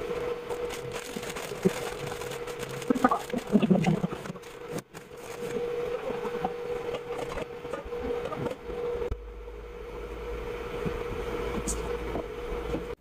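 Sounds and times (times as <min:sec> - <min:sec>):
steady hum: 0:00.0 - 0:13.0
noodles crackling: 0:00.1 - 0:06.2
water bubbling at a boil: 0:02.8 - 0:04.4.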